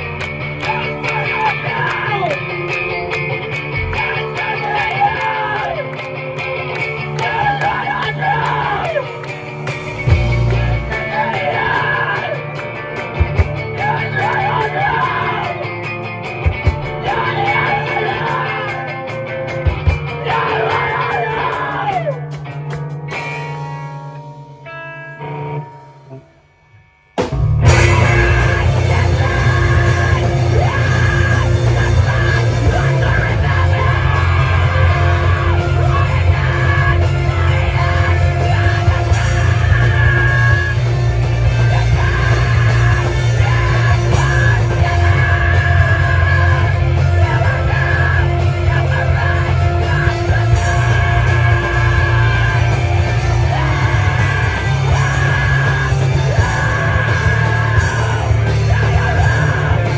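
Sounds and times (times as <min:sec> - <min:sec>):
drums: 0:00.0 - 0:59.9
electric guitar: 0:00.0 - 0:59.9
live rock band: 0:00.0 - 0:59.9
person yelling: 0:00.7 - 0:02.4, 0:04.0 - 0:05.9, 0:07.2 - 0:09.1, 0:11.0 - 0:12.4, 0:13.8 - 0:15.6, 0:17.0 - 0:18.8, 0:20.2 - 0:22.2, 0:27.7 - 0:40.8.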